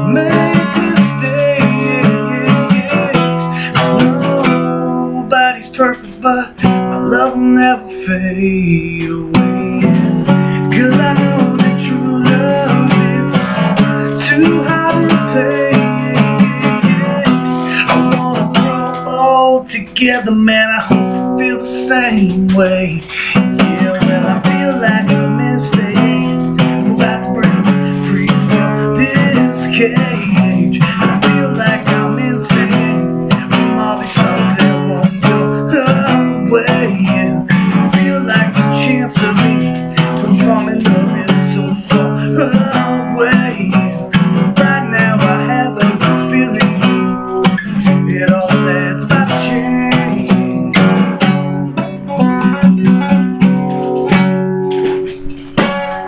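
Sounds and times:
acoustic guitar strumming: 0.0s - 56.0s.

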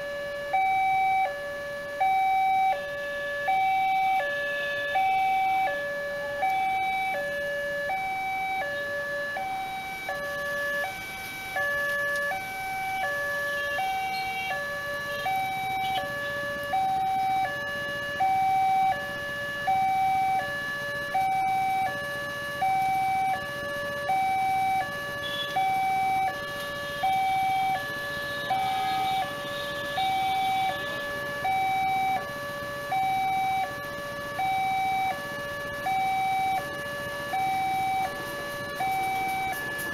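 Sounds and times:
two-tone level crossing alarm: 0.0s - 39.9s.

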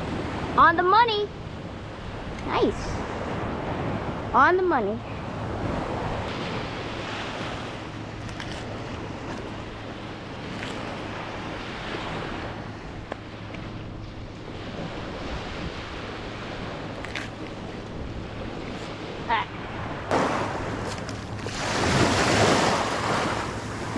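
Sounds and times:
wind on microphone: 1.4s - 23.9s
surf washing onto beach: 18.2s - 23.9s.

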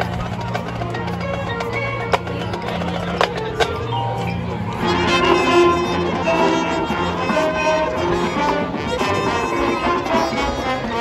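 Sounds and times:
marching band brass chords: 4.7s - 11.0s.

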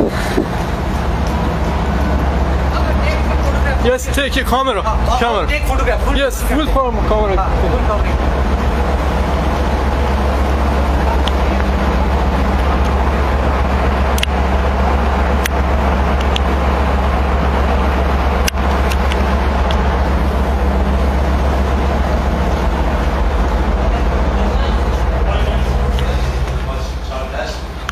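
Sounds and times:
wind rumble on microphone: 0.0s - 3.6s
ship engine drone: 0.0s - 27.9s.

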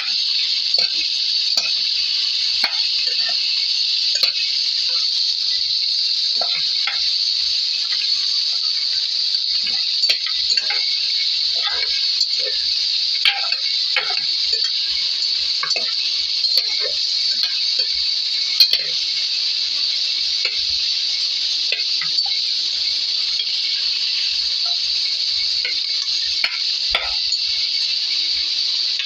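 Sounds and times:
food sizzling: 0.0s - 29.0s
spatula scraping a metal pot: 2.5s - 3.5s, 9.6s - 19.0s.

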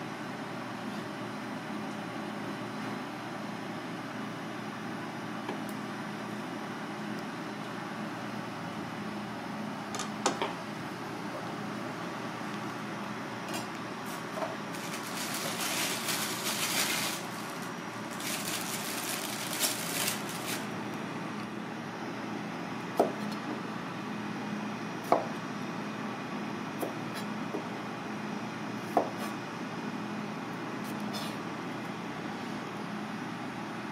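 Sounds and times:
steady background hum: 0.0s - 33.9s
knife chopping on cutting board: 23.0s - 23.4s, 28.9s - 29.4s.

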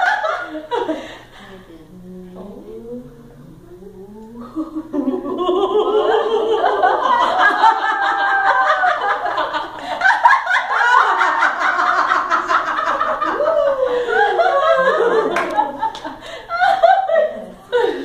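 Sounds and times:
women laughing loudly together: 0.0s - 1.3s, 4.6s - 18.0s.

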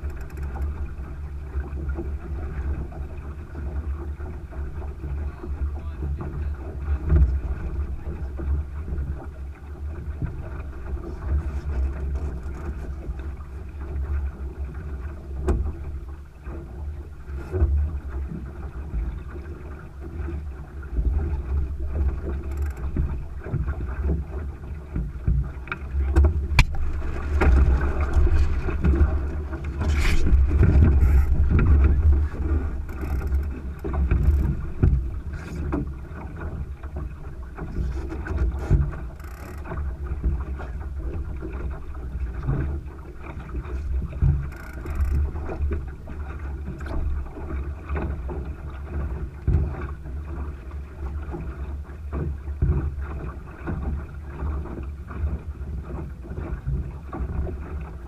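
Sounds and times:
water rushing along hull: 0.0s - 58.0s
wind buffeting microphone: 20.8s - 39.1s.

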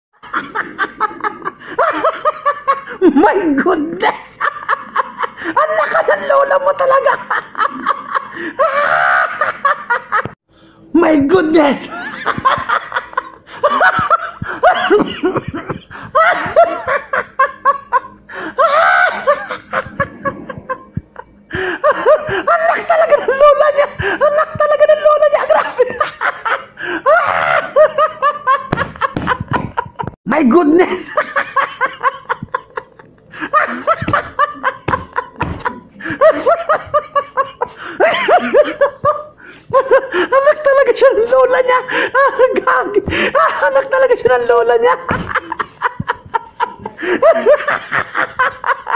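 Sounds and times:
man laughing hard: 0.2s - 10.4s, 11.8s - 30.2s, 30.9s - 48.9s
noisy breaths drawn in: 10.5s - 10.9s, 37.7s - 38.1s, 39.3s - 40.3s.

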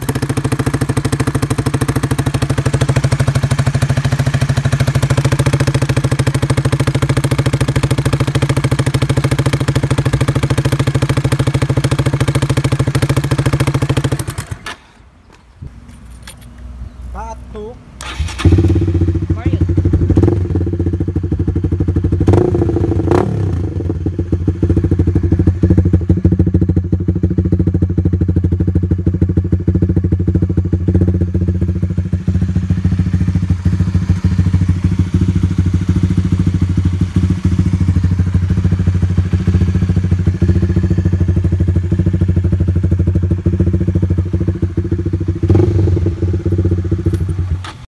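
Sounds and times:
motorcycle engine idling: 0.0s - 14.7s, 15.3s - 47.9s
motorcycle engine revving bursts: 18.0s - 47.9s.

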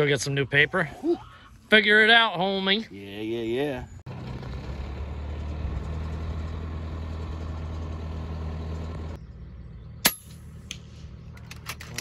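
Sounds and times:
tractor engine running: 4.1s - 12.0s.

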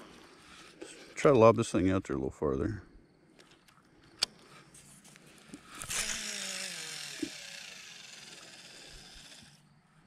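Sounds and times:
fishing reel spool whirring: 5.3s - 9.8s.

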